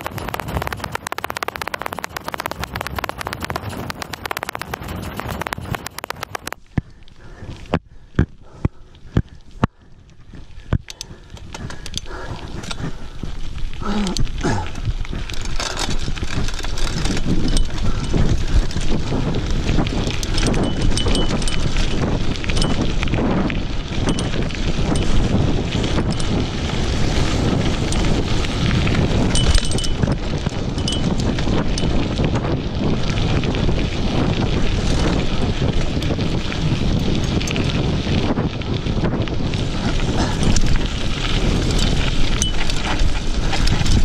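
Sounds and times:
tyres crunching on gravel: 0.0s - 6.7s, 23.8s - 44.0s
bike rattling over stones: 0.0s - 44.0s
wind buffeting microphone: 0.0s - 44.0s.

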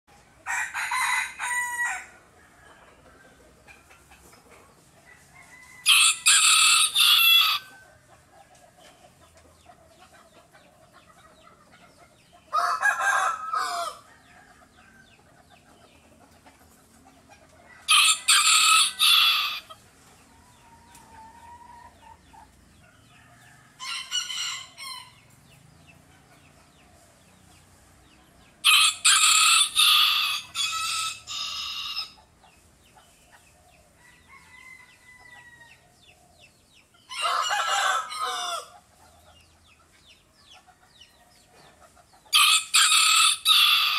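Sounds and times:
rooster crowing: 0.4s - 2.9s, 5.1s - 7.8s, 12.5s - 15.0s, 17.8s - 19.7s, 28.6s - 32.2s, 34.0s - 35.8s, 37.1s - 38.8s, 42.3s - 43.9s.

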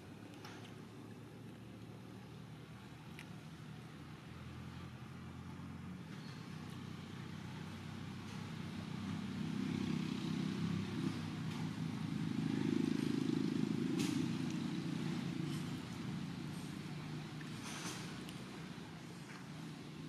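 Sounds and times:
motor vehicle engine rumble: 0.0s - 20.0s.

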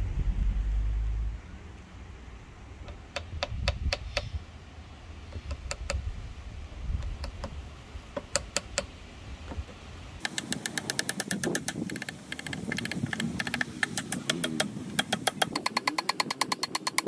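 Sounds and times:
hammer tapping wooden wedge: 2.8s - 4.3s, 5.3s - 6.0s, 7.0s - 17.0s.

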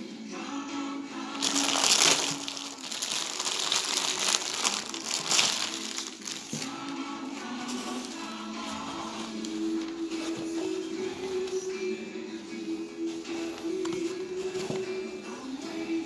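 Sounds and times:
background music: 0.0s - 16.0s
plastic bag crinkling: 1.3s - 7.0s.

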